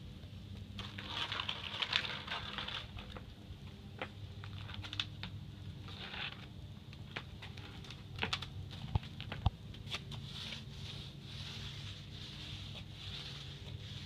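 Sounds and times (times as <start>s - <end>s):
low steady hum: 0.0s - 14.0s
paint roller wet crackling hiss: 9.8s - 14.0s.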